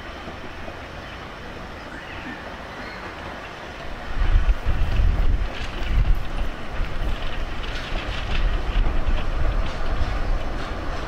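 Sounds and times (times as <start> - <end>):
steam locomotive puffing and hissing: 0.0 - 11.0
wind rumble on microphone: 3.9 - 11.0.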